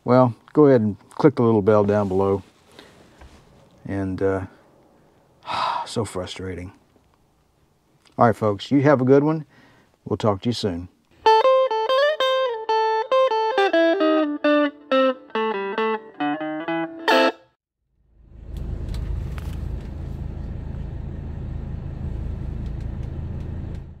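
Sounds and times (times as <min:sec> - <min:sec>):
electric guitar plucked notes: 0:11.2 - 0:17.6
steady low rumble: 0:18.1 - 0:24.0.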